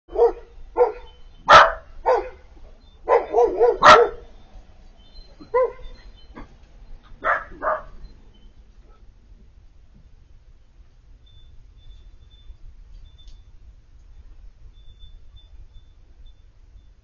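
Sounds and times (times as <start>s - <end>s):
puppy barking: 0.1s - 2.5s, 3.1s - 4.3s, 5.4s - 6.5s, 7.2s - 8.0s
puppy whining: 5.1s - 8.1s.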